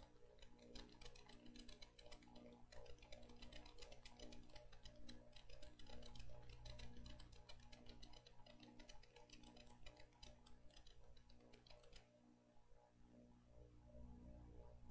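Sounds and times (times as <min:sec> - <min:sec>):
rapid irregular clicking: 0:00.0 - 0:12.2
low steady hum: 0:09.2 - 0:14.9.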